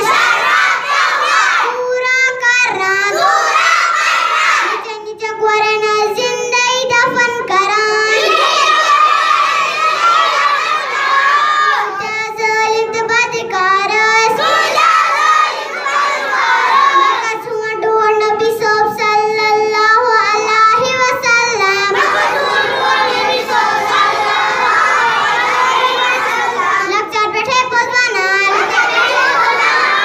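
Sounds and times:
boy singing into a microphone: 1.6 - 3.5, 4.7 - 8.3, 11.8 - 14.5, 16.9 - 26.1, 26.8 - 28.6.

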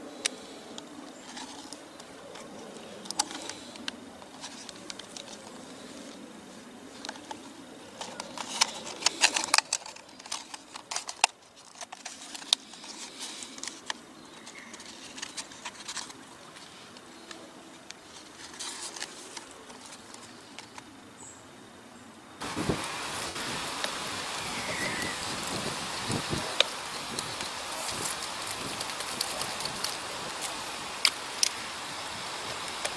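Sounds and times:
dry bark crackling and rustling: 0.0 - 21.0, 22.4 - 32.9.

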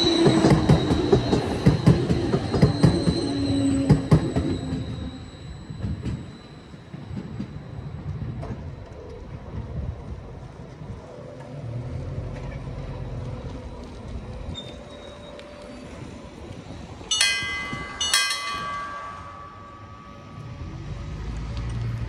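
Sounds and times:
tram rumbling: 0.0 - 22.0
loud ringing metallic strikes: 17.1 - 20.6.

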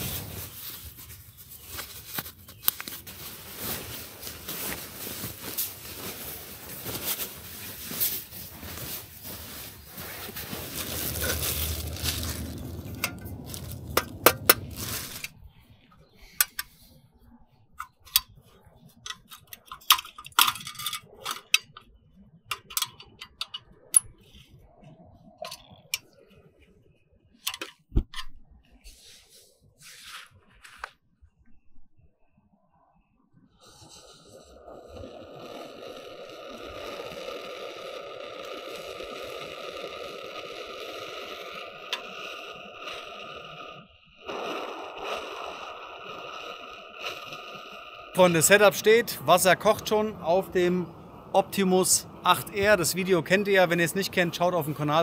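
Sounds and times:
rustling handling noise: 0.0 - 15.5.

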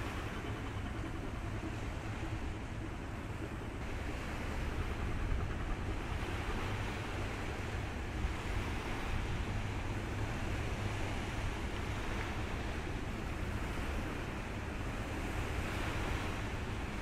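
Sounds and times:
choppy sea water: 0.0 - 17.0.

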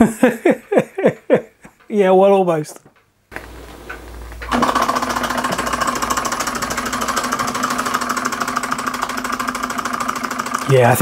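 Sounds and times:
hot air engine clattering: 3.4 - 11.0.

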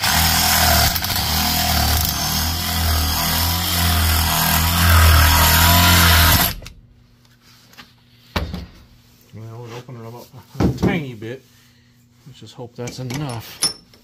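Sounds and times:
drill boring through metal: 0.0 - 6.6.

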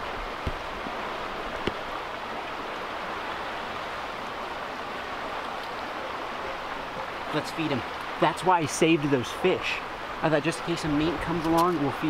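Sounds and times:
water rushing over rocks: 0.0 - 12.0.

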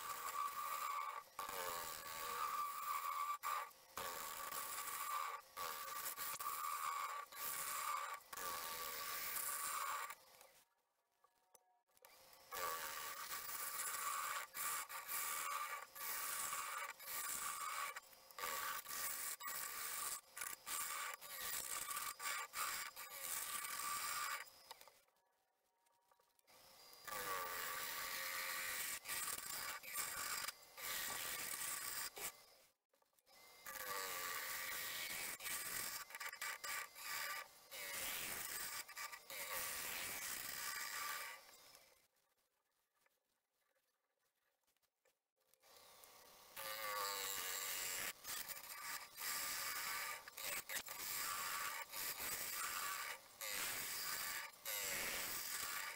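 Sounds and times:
gouge scraping wood on lathe: 0.0 - 10.5, 12.1 - 24.7, 46.6 - 55.9.

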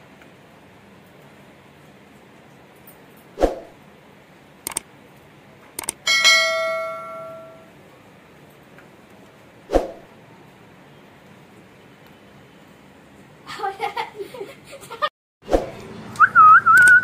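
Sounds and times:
mouse clicks: 4.6 - 4.8, 5.8 - 6.0
bell ding: 6.1 - 7.7.

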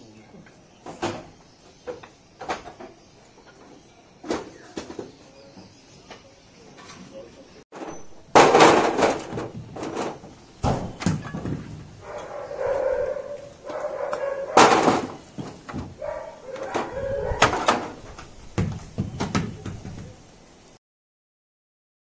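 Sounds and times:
debris knocking and clattering: 7.7 - 12.0, 14.6 - 16.0
sharp impacts: 7.8 - 11.9, 14.5 - 16.0.

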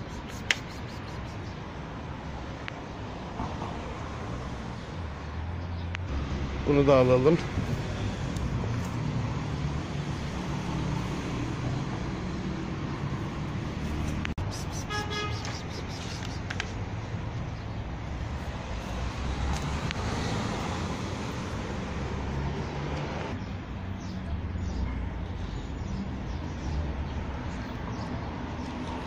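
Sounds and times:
road traffic rumble: 0.0 - 29.0
car horn toot: 14.8 - 15.6.

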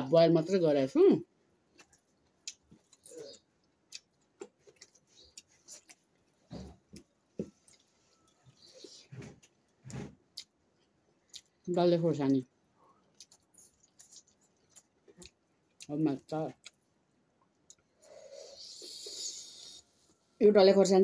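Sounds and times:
chewing and lip smacks: 1.7 - 11.6, 12.9 - 15.9.

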